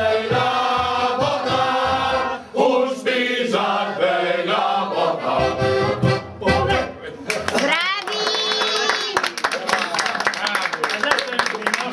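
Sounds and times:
men singing folk carol: 0:00.0 - 0:07.1
piano accordion: 0:05.1 - 0:07.1.

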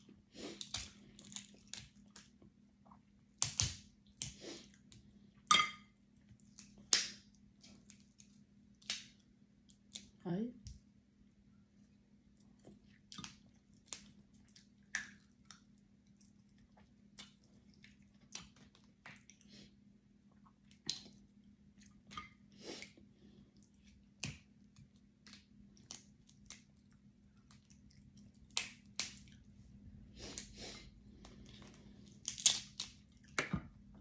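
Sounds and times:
crab shells cracking: 0:00.6 - 0:02.3, 0:03.4 - 0:04.4, 0:28.3 - 0:29.4, 0:32.1 - 0:33.5
wet chewing: 0:12.3 - 0:19.5, 0:23.5 - 0:33.4.

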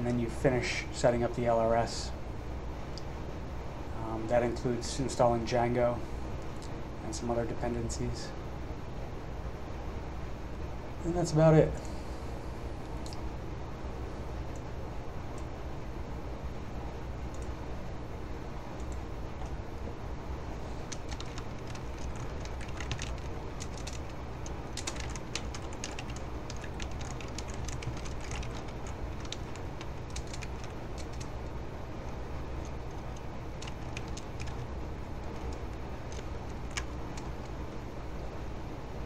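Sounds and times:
steady low hum: 0:00.0 - 0:39.0
computer keyboard clicks: 0:20.9 - 0:31.3, 0:32.6 - 0:34.7, 0:35.3 - 0:37.4.

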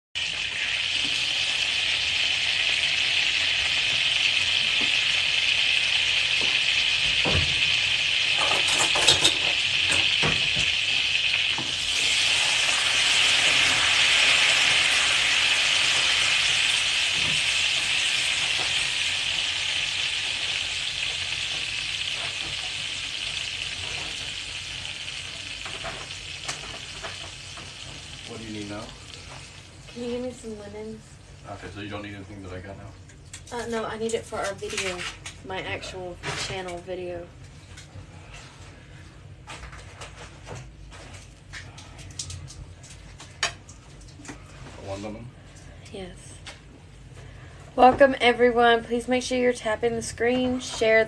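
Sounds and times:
butter and oil sizzling: 0:00.2 - 0:32.2.

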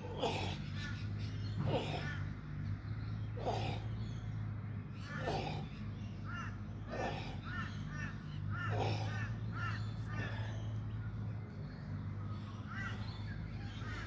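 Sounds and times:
steady low hum: 0:00.0 - 0:14.0
crow cawing: 0:07.4 - 0:10.5.

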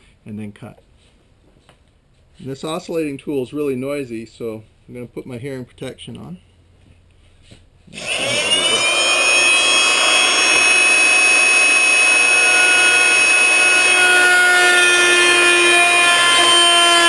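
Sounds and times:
multi-tool cutting metal: 0:07.9 - 0:17.0.

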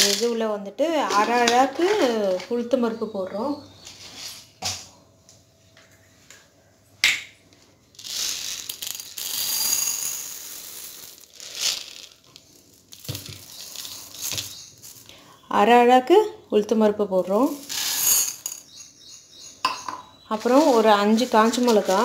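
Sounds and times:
dry grains poured into steel tumbler: 0:08.0 - 0:15.1, 0:17.6 - 0:18.6.

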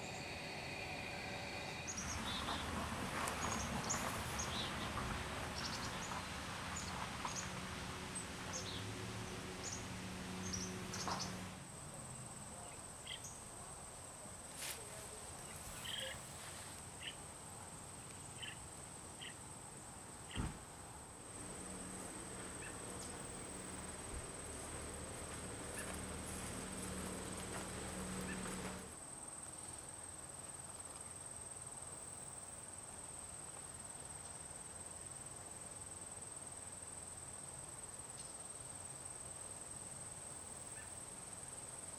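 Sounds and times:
high insect tone: 0:00.0 - 0:11.6, 0:21.4 - 0:29.0, 0:31.9 - 0:32.6, 0:40.3 - 0:41.2
steady background hiss: 0:00.0 - 0:41.9.

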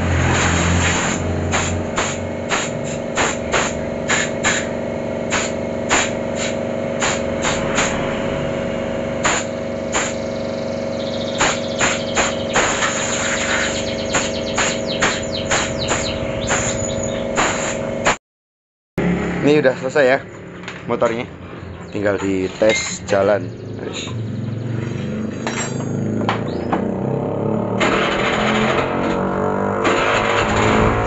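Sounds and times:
compressed air blow gun blasts: 0:00.0 - 0:08.2, 0:09.2 - 0:10.6, 0:11.2 - 0:18.2
steady mechanical hum: 0:00.0 - 0:18.2, 0:19.0 - 0:27.0.

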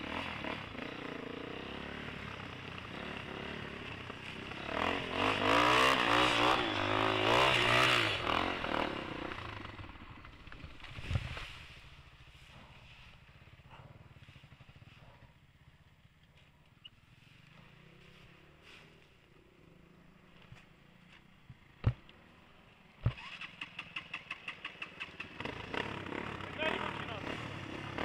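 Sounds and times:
motorcycle engine pulsing: 0:00.0 - 0:18.1
dirt bike engine idling: 0:00.0 - 0:28.0.

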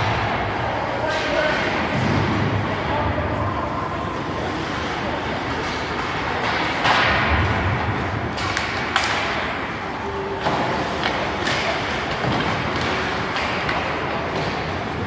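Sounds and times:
hockey sticks and puck knocking: 0:05.5 - 0:09.8, 0:10.4 - 0:15.0.

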